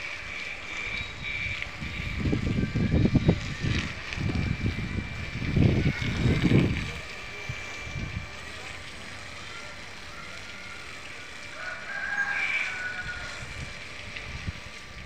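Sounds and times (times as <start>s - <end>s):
wind buffeting microphone: 0.2s - 8.7s, 11.9s - 15.0s
rooster crowing: 9.5s - 13.7s.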